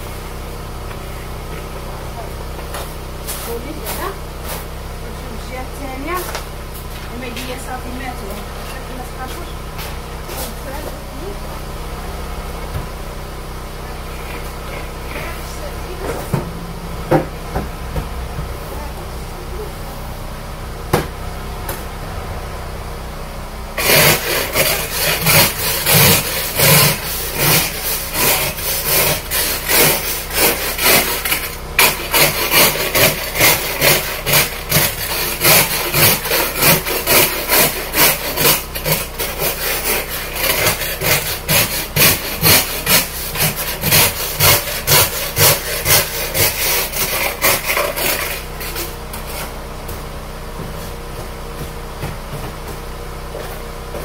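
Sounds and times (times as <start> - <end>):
ice scraper rasping on windshield: 14.1 - 16.4, 23.8 - 49.6.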